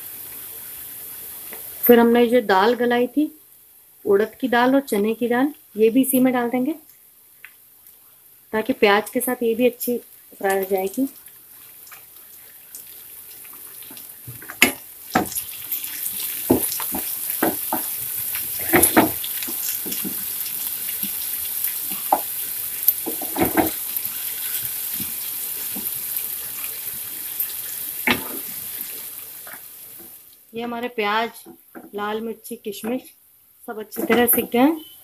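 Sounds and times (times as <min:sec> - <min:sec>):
food sizzling in hot oil: 0:00.0 - 0:33.1, 0:33.7 - 0:35.0
spatula scraping and knocking pan: 0:16.4 - 0:18.0, 0:18.6 - 0:20.2, 0:23.0 - 0:23.8, 0:34.0 - 0:34.6.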